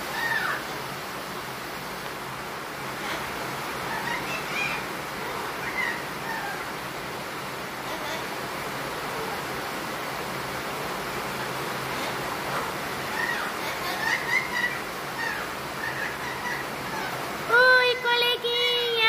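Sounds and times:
parrot squawking: 0.0 - 0.7, 3.0 - 6.8, 11.4 - 19.0
steady background hiss: 0.0 - 19.0.

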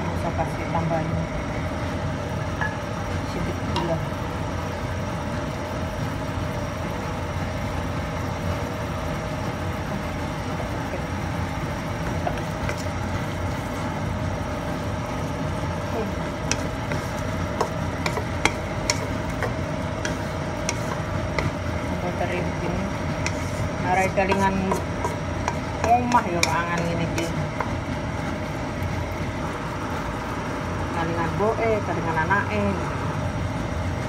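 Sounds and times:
steady mechanical hum: 0.0 - 34.0
sauce simmering: 1.4 - 30.9
spatula stirring food in a wok: 2.3 - 30.1
spatula tapping a pan: 16.4 - 21.6, 23.2 - 27.8.

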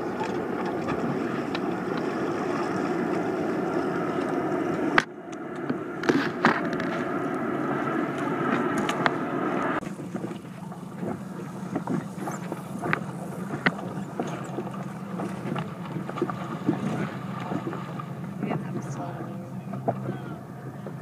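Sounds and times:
steady low hum: 0.0 - 21.0
water lapping against boat: 0.0 - 21.0
wind on microphone: 0.0 - 21.0
small clicks and splashes: 9.8 - 20.1.

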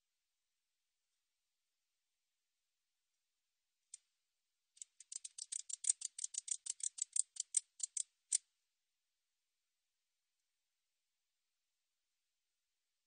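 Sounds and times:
katydid clicking: 4.8 - 8.4.

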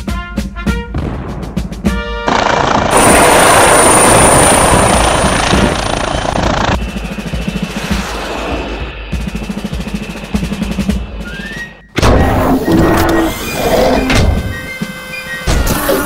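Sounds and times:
brass and drum music: 0.0 - 3.0, 6.8 - 12.5
helicopter rushing and whine: 2.2 - 11.8.

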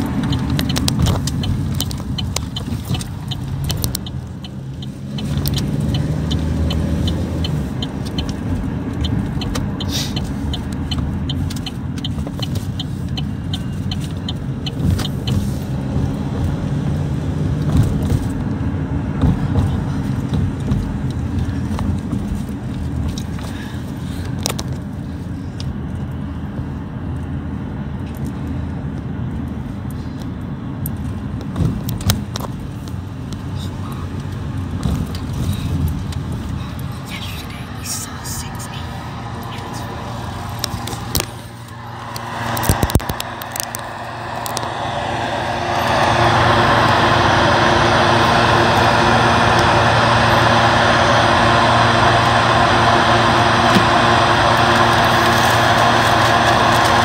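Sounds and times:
light regular ticking: 0.0 - 15.4
road and engine rumble inside car: 0.0 - 57.0.

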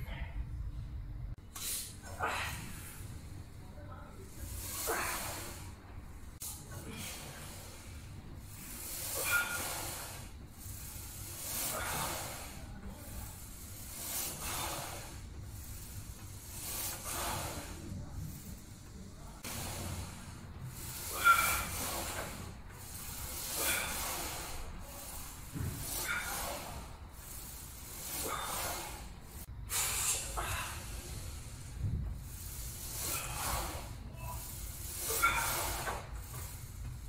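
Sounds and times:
man breathing forcefully: 6.4 - 17.9, 19.4 - 36.9.

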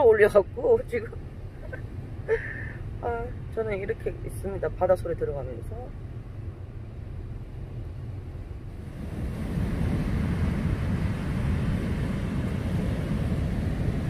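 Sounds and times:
surf breaking on a beach: 8.7 - 14.0
wind on microphone: 8.7 - 14.0.

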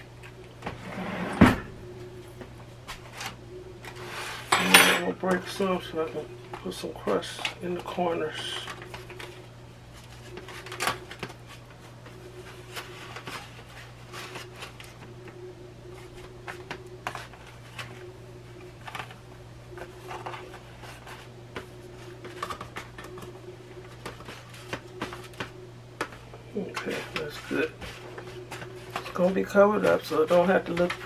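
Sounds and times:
low hum: 0.0 - 31.0
foil pan crinkling and tapping: 6.5 - 15.1, 19.8 - 31.0.

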